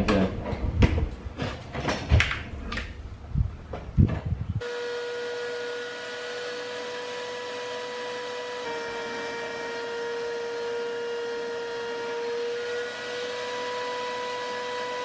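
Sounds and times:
shop vacuum whining hum: 4.6 - 15.0.

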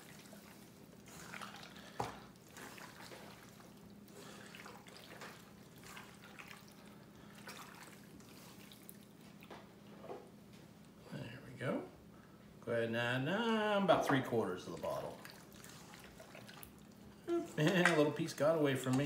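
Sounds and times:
wet squelching of meat: 0.0 - 9.5, 14.8 - 17.1.

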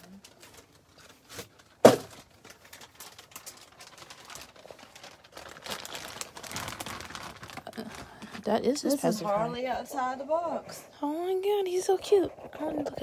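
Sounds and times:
plastic packaging crinkling: 0.0 - 9.8.

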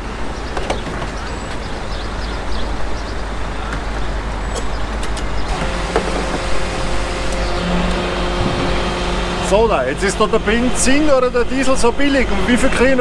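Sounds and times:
traffic noise: 0.0 - 13.0
fuel pump hum: 4.2 - 13.0.

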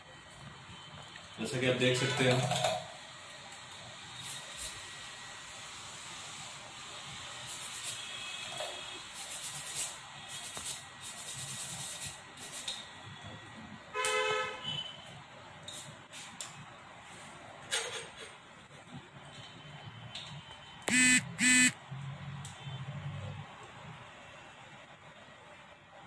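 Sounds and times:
short horn toot: 20.9 - 21.8.

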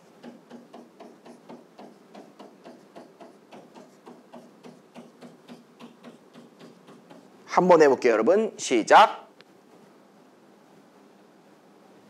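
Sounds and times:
soft ticking beat with low note: 0.0 - 7.3.

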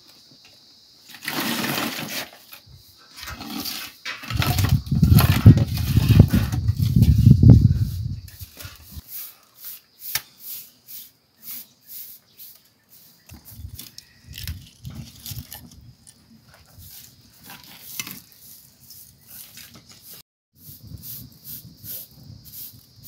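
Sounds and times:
kindling crackling and snapping: 13.3 - 16.2.

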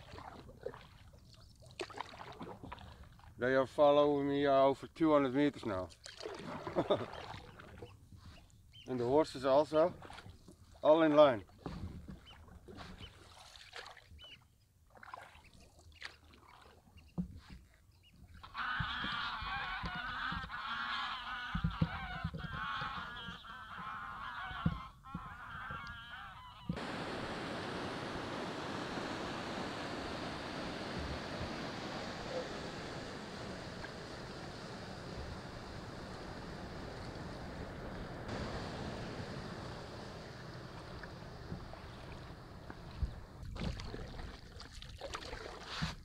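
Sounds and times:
water: 0.0 - 46.0
geese honking: 18.4 - 26.9
wind on microphone: 26.6 - 44.4.

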